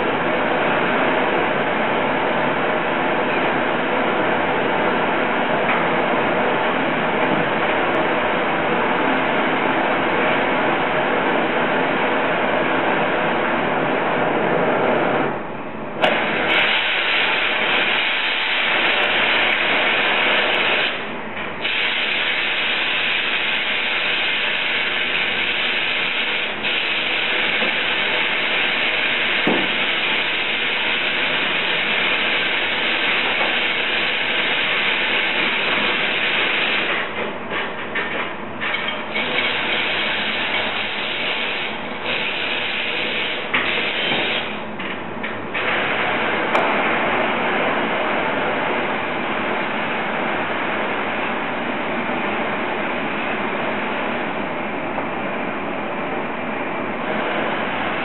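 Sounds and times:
gas torch flame hissing: 16.0s - 37.3s, 38.6s - 44.7s.

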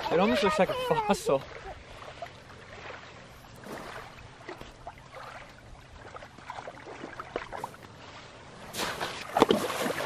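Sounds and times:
faint little splashes: 0.0s - 10.0s.

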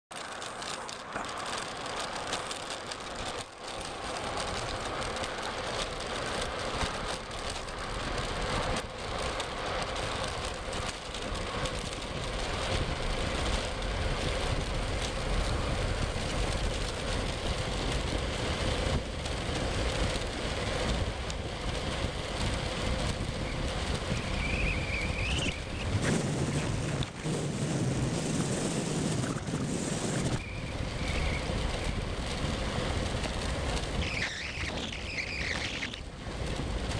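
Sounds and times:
wheels rumbling on asphalt: 0.1s - 36.9s
wind rushing over microphone: 4.5s - 36.9s.

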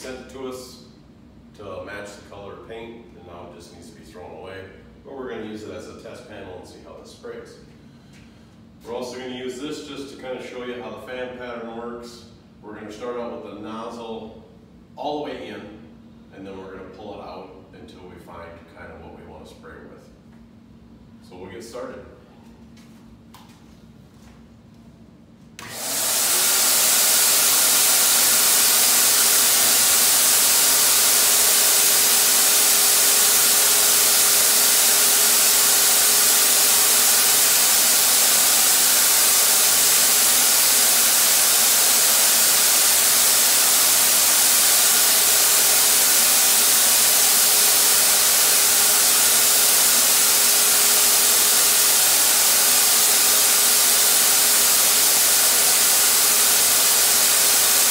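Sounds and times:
turbine sprayer air rush: 25.6s - 57.9s.

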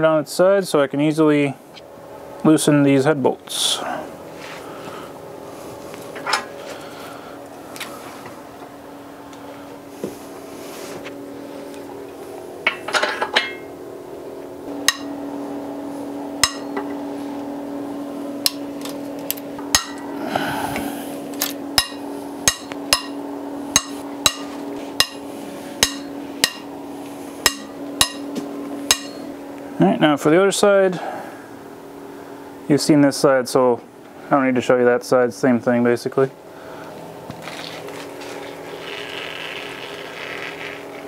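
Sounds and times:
steady hum: 0.0s - 41.0s
metal-on-metal knocks: 27.5s - 28.3s, 28.9s - 29.3s
scraping creak: 37.4s - 41.0s.

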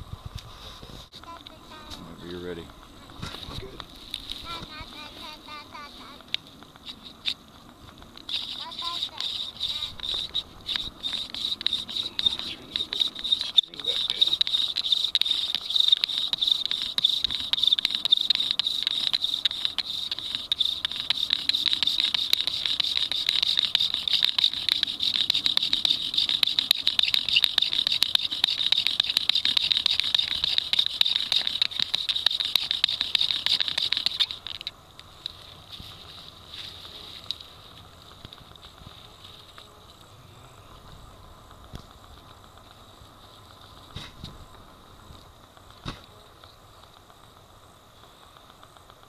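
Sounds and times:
bow drill grinding wood: 6.8s - 34.7s.

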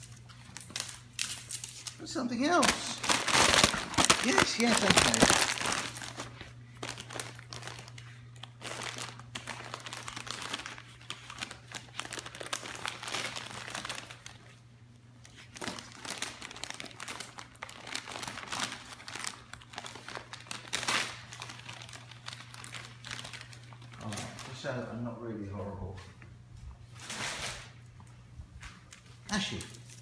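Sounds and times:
wrapping paper crinkling and tearing: 0.0s - 24.8s.

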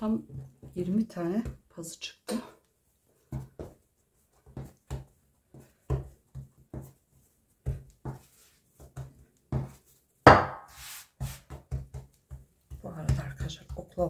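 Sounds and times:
hands patting dough on wood: 0.0s - 14.0s.

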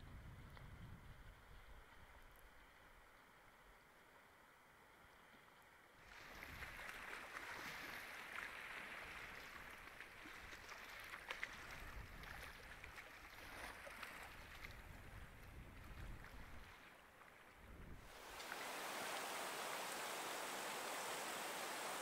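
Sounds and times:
lake waves lapping: 6.1s - 17.2s, 18.0s - 22.0s
faint hiss: 18.0s - 22.0s.

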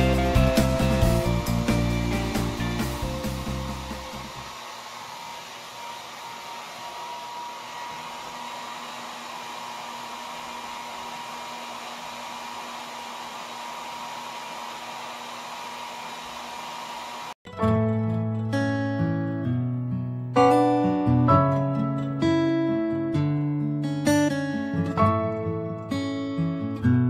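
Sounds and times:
hair dryer running: 0.0s - 17.4s.

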